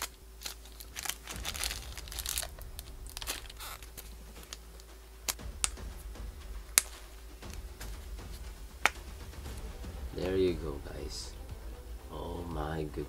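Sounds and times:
plastic bags crinkling: 0.0 - 5.4.

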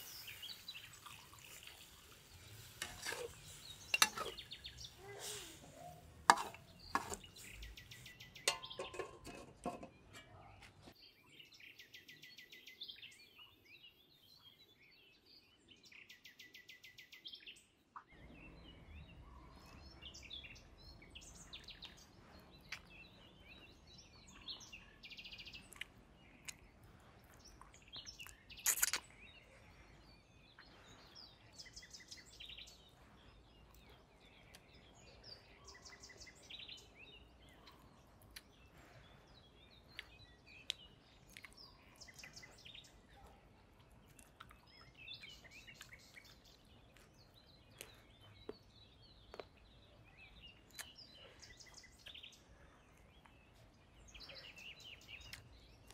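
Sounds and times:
birds chirping and trilling: 0.0 - 55.9
person gnawing chicken feet: 25.7 - 29.2, 39.9 - 41.6, 43.8 - 44.7.

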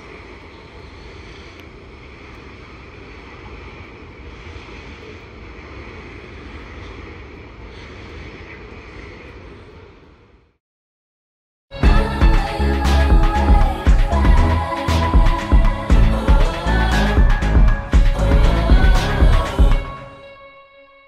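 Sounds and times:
wind buffeting microphone: 0.0 - 10.2
even hiss: 11.8 - 20.2
low rumble: 11.8 - 20.2.

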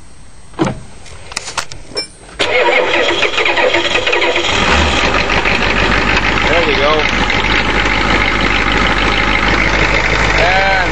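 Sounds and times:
diesel engine clattering: 2.4 - 10.9.

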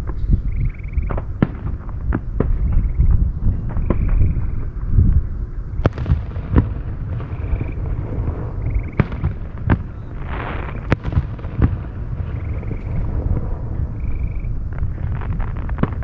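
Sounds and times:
low rumble: 0.0 - 16.0
fireworks booming: 1.0 - 5.1, 5.8 - 16.0.

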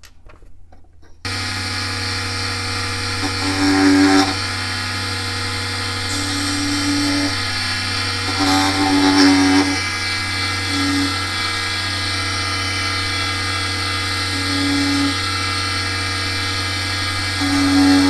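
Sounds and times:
small electric motor whine: 1.3 - 18.0.

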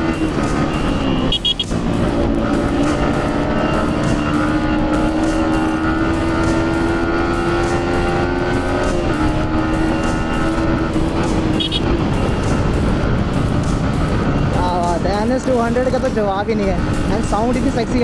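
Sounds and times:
motorcycle engine accelerating: 0.0 - 18.0
wind rush: 10.6 - 18.0.

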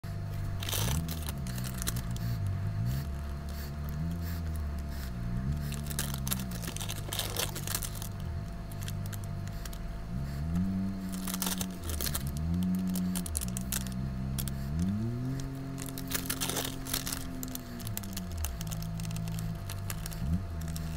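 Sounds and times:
powder crackling and rustling: 0.3 - 9.9, 10.6 - 20.9.

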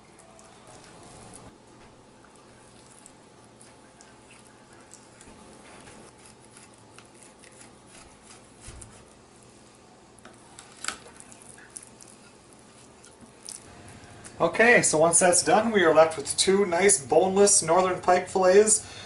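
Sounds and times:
knife scraping on cutting board: 5.7 - 9.1.

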